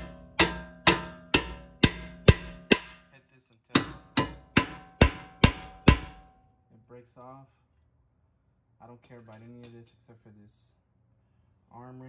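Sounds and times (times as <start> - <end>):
hammer blows on steel: 0.0 - 3.1, 3.8 - 6.3.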